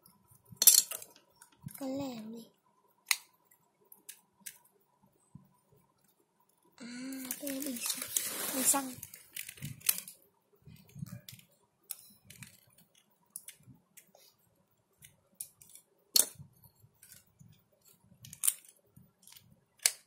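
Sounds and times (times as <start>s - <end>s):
plastic toy pieces clicking: 18.2s - 20.0s.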